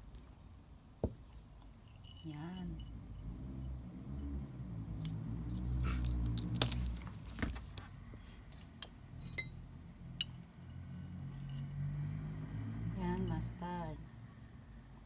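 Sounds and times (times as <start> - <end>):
low steady hum: 0.0 - 15.0
utensils clinking on glass bowls: 1.8 - 3.0, 9.2 - 9.6.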